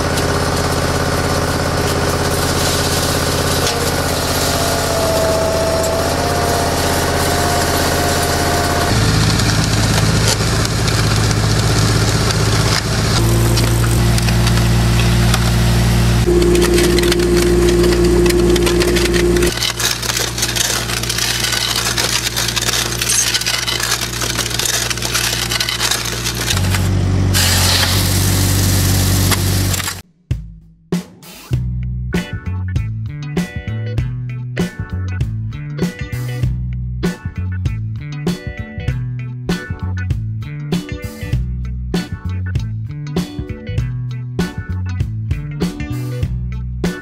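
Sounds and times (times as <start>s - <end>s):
loader engine running: 0.0s - 30.0s.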